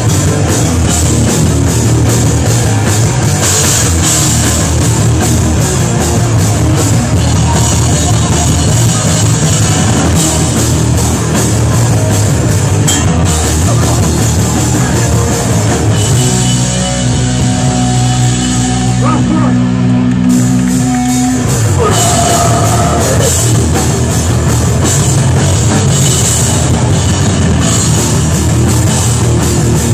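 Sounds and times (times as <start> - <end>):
loud live hardcore band: 0.0 - 29.9.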